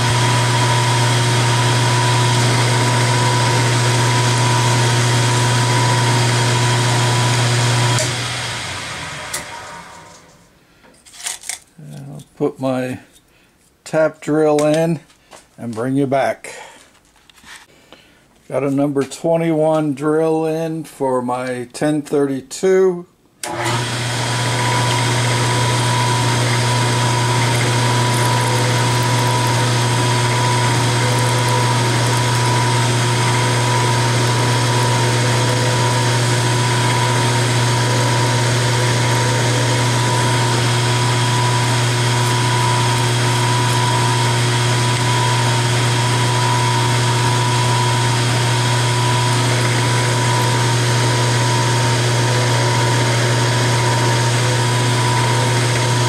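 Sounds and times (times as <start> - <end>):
milling machine drilling metal: 0.0 - 8.3, 23.4 - 56.0.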